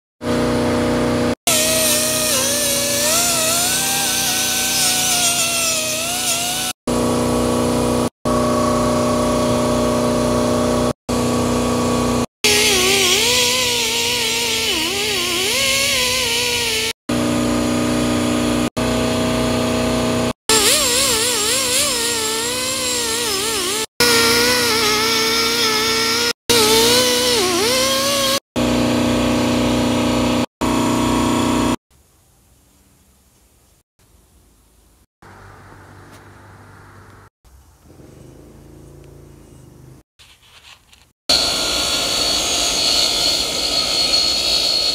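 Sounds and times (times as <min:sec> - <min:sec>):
die grinder whining: 0:00.2 - 0:31.8, 0:41.3 - 0:44.9.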